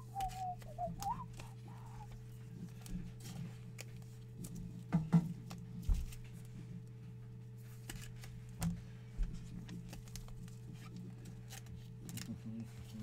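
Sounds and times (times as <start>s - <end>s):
cards being handled: 0.0s - 6.6s, 7.6s - 13.0s
steady low hum: 0.0s - 13.0s.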